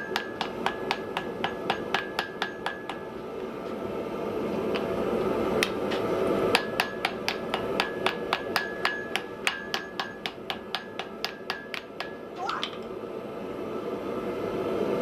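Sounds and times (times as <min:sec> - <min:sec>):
hammer striking iron on anvil: 0:00.0 - 0:03.1, 0:06.5 - 0:12.8.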